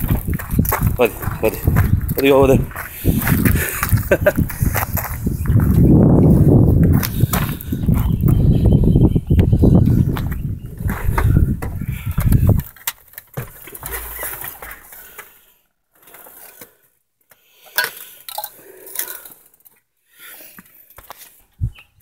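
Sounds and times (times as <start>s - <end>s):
loose items clinking: 12.6s - 15.3s.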